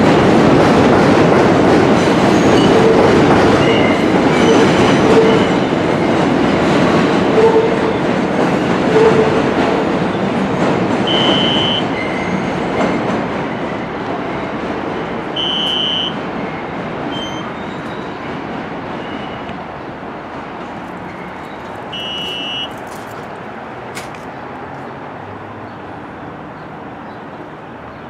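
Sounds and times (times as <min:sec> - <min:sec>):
subway train rumbling on rails: 0:00.0 - 0:28.0
high wheel squeals: 0:11.1 - 0:12.5, 0:15.4 - 0:18.3, 0:21.0 - 0:23.0.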